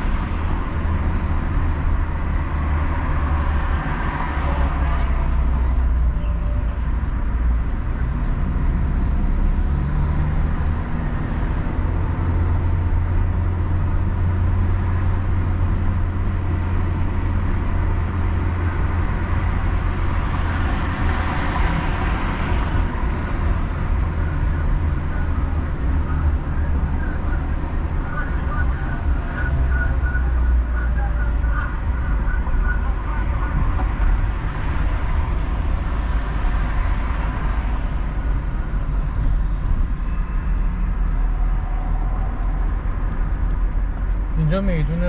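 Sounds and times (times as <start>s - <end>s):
car engine and road noise: 0.0s - 45.0s.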